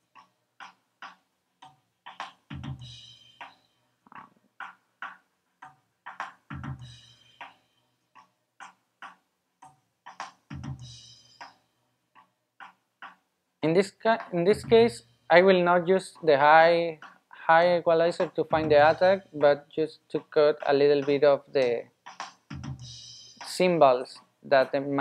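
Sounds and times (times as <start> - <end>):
cymbals: 22.8 - 23.6.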